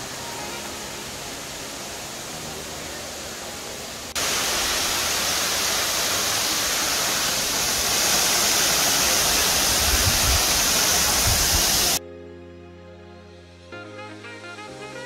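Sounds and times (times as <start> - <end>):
waterfall rushing water: 0.0 - 12.0
wind buffeting microphone: 9.6 - 12.0.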